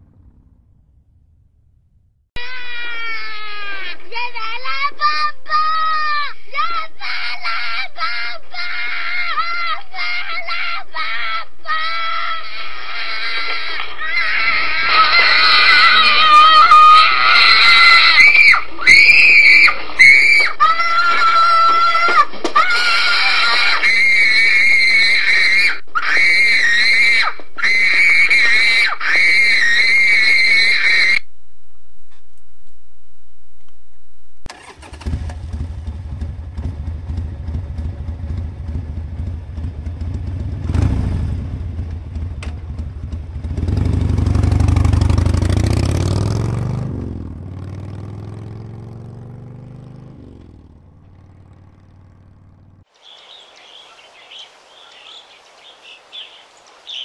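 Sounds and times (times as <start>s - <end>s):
vehicle engine rumble passing: 0.0s - 2.3s, 34.5s - 52.9s.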